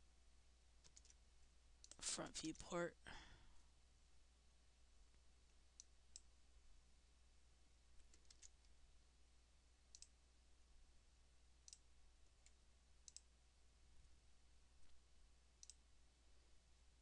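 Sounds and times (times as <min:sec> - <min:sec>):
computer mouse clicks: 0:00.8 - 0:01.2, 0:01.8 - 0:02.0, 0:05.7 - 0:06.3, 0:08.0 - 0:08.8, 0:09.9 - 0:10.2, 0:11.6 - 0:13.3, 0:15.6 - 0:15.8.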